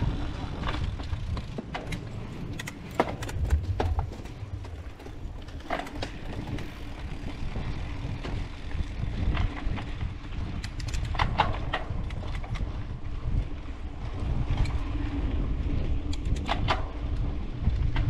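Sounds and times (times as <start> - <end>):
tyres rumbling on dirt: 0.0 - 10.2
bike clicking and rattling: 0.0 - 18.0
wind on microphone: 0.0 - 18.0.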